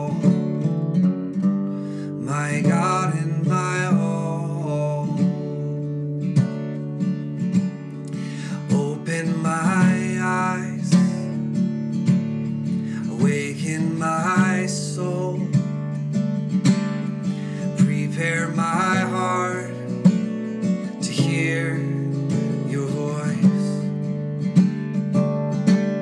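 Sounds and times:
acoustic guitar strumming: 0.0 - 26.0
worship song: 1.9 - 5.9, 8.0 - 11.6, 12.7 - 16.0, 17.2 - 23.9.

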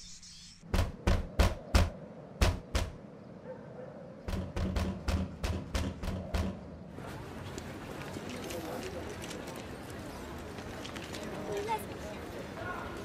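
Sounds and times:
knocking on a door: 0.7 - 3.0, 4.3 - 6.6.

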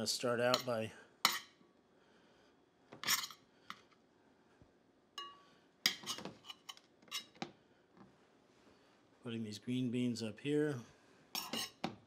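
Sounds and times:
metal spoon clinking in saucepan: 5.2 - 7.3, 11.4 - 11.8.

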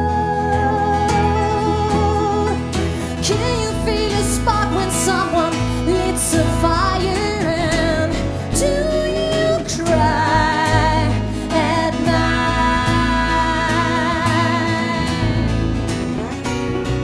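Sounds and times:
woman singing: 0.0 - 16.3
acoustic guitars: 0.0 - 17.0
upright double bass: 0.0 - 17.0.

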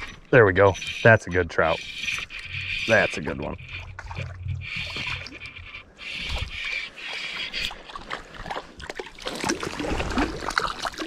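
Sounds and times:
fish splashing in water: 3.7 - 11.0.

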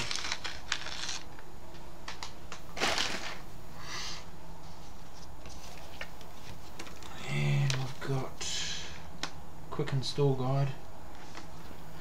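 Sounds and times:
plastic bag rustling: 2.8 - 3.5.

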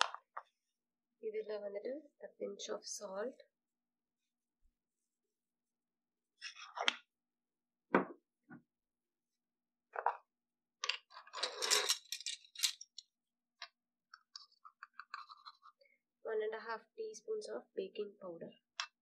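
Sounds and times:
measuring spoons clattering: 11.2 - 13.0
utensils clinking on glass bowl: 11.3 - 13.0.

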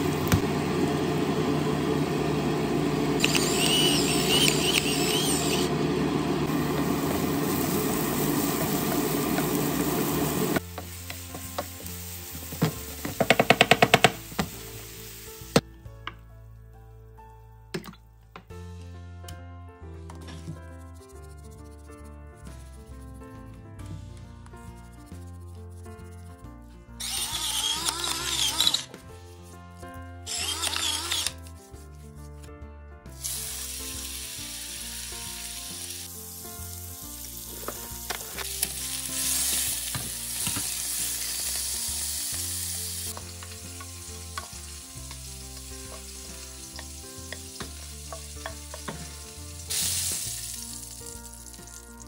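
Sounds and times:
pepper mill grinding: 3.2 - 5.7, 27.0 - 29.0, 30.3 - 31.8
meat sizzling in frying pan: 6.5 - 15.6, 33.2 - 52.0
faint background music: 10.6 - 52.0.

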